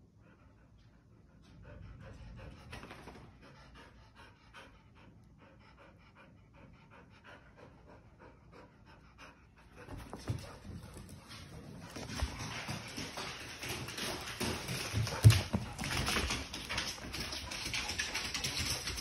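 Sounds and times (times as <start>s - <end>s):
dog panting: 0.1s - 19.0s.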